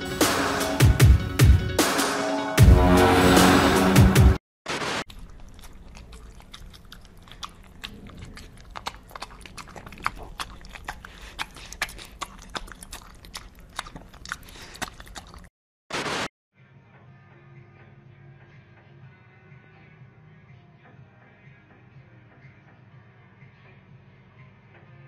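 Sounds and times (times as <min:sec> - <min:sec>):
kitten lapping milk: 0:05.1 - 0:15.5.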